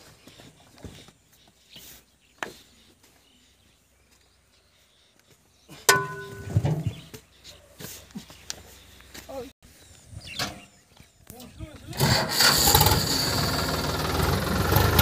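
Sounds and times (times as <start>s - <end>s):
sharp metallic clank: 5.9s - 6.8s.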